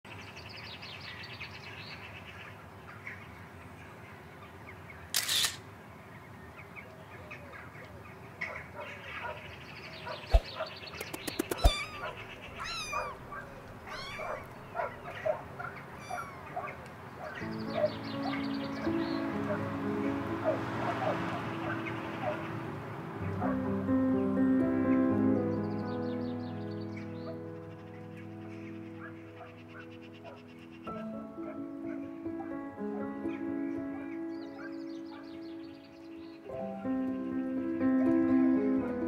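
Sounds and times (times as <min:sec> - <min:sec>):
sharp clicks: 0:05.2 - 0:05.6, 0:10.3 - 0:12.9
cat meowing and chirping: 0:11.1 - 0:15.0, 0:16.0 - 0:16.6.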